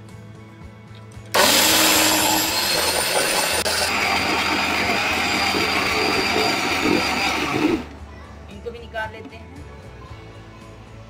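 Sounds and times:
mixer grinder motor whining: 1.3 - 8.0.

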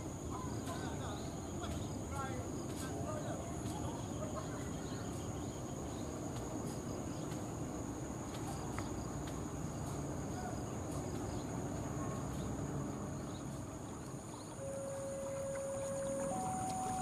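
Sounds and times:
insects buzzing: 0.0 - 17.0
locomotive idling: 14.6 - 17.0.

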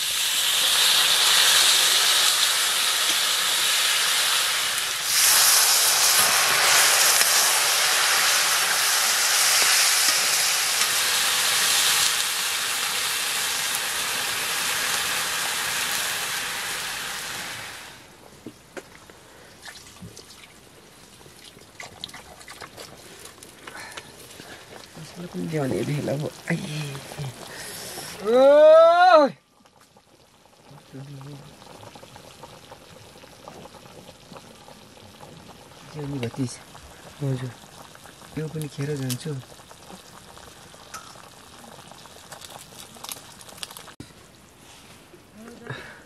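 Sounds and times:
water poured into hot fat: 0.0 - 17.8, 30.0 - 44.0
pork sizzling in a pan: 0.0 - 18.0, 29.8 - 44.0
hiss of steam: 0.0 - 18.1, 26.5 - 28.7.

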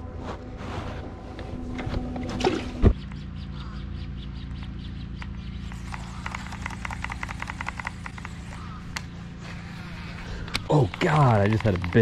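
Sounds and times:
steady low hum: 0.0 - 12.0
rustling and clicking handling: 10.4 - 12.0.

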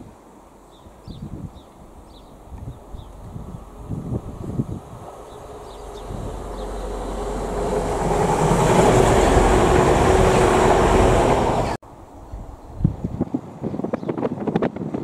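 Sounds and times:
diesel train passing: 1.8 - 12.6.

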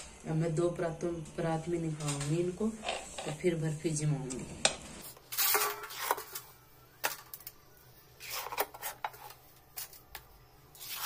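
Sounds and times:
metal spatula scraping iron pan: 5.3 - 6.4.

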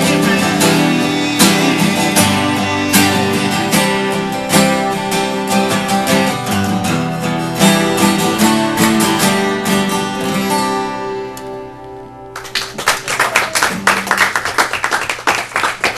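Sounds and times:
acoustic guitar strumming: 0.0 - 12.4
people clapping: 12.3 - 15.9.

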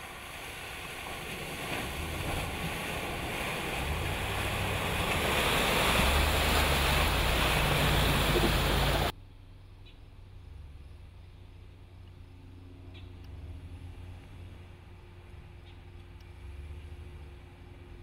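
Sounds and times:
water splashing from tyres: 0.0 - 9.2
truck engine rumbling: 0.0 - 18.0.

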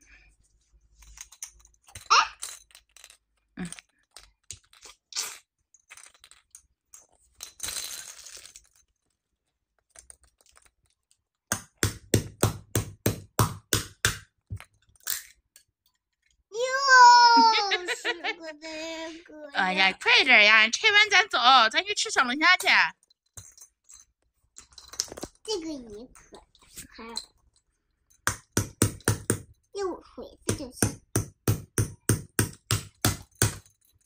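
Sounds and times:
toy hammer knocking plastic egg: 11.5 - 14.3, 28.2 - 29.5, 30.4 - 33.7.

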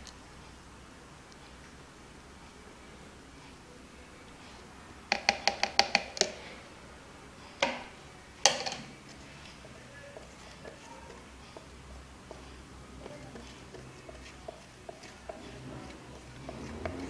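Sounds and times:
stick and plastic jugs knocking: 5.1 - 6.4, 7.6 - 8.9, 9.6 - 17.0.

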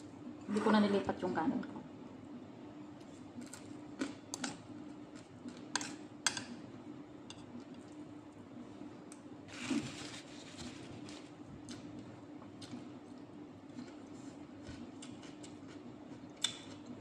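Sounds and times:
faint steady hum: 0.0 - 17.0
rustling and chewing: 9.5 - 17.0
eating clicks and smacks: 15.0 - 17.0.

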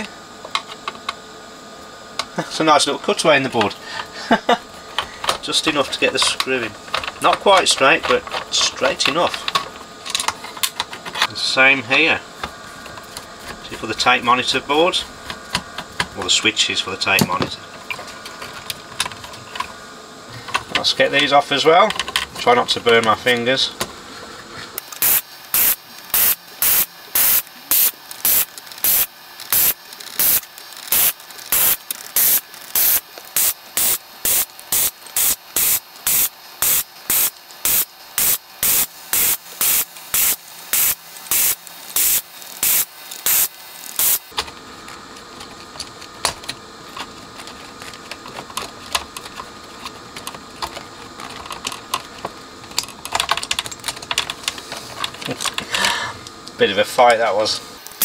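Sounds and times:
desoldering pump hissing: 2.2 - 44.4, 54.4 - 58.0.

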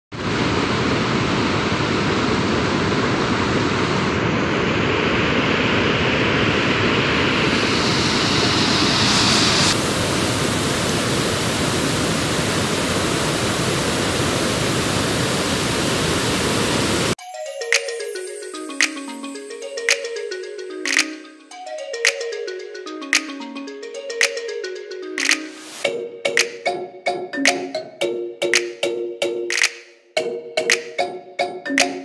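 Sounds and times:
waterfall rushing: 7.5 - 17.2.

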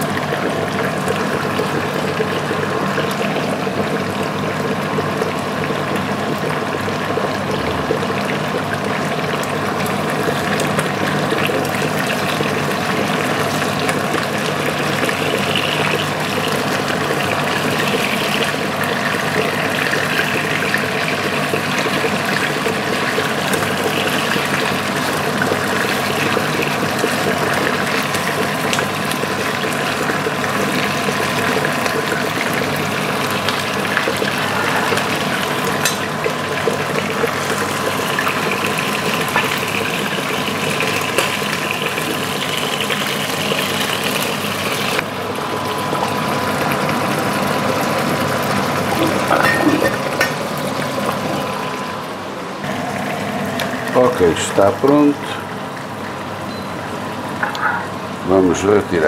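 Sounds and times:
liver sizzling in a frying pan: 8.0 - 51.8.

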